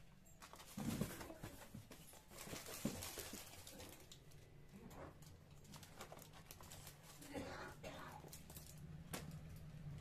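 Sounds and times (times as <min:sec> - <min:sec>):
plastic wrapper rustling: 0:00.2 - 0:09.7
hands rummaging in cardboard box: 0:00.4 - 0:04.1.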